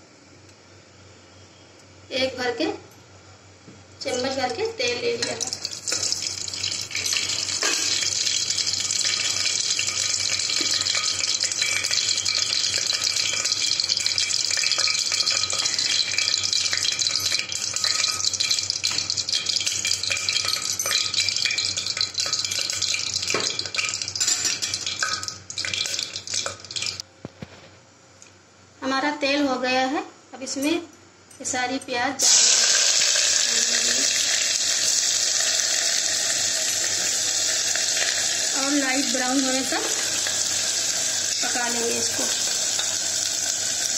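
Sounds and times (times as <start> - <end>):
oil sizzling and crackling: 4.0 - 27.1, 32.2 - 43.9.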